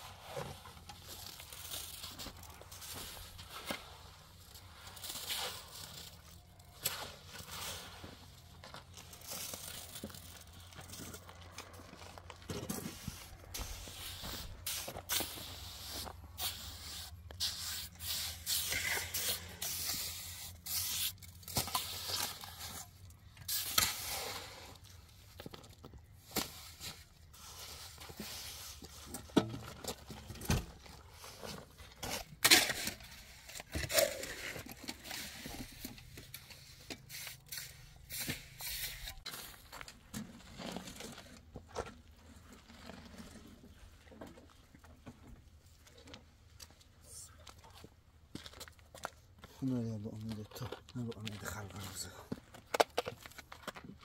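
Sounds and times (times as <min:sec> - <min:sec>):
shovel scraping mortar in wheelbarrow: 0:12.4 - 0:24.9, 0:26.2 - 0:43.8
trowel spreading mortar: 0:12.7 - 0:24.8, 0:31.3 - 0:39.6.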